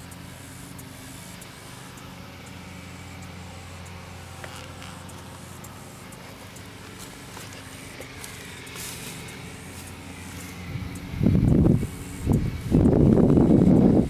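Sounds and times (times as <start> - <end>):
engine humming steadily: 0.0 - 14.0
faint high ticks: 3.2 - 13.9.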